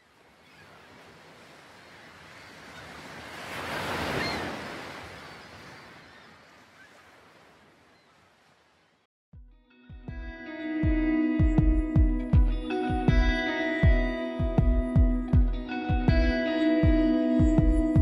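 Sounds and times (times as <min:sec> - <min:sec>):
ocean wave breaking: 0:00.0 - 0:08.9.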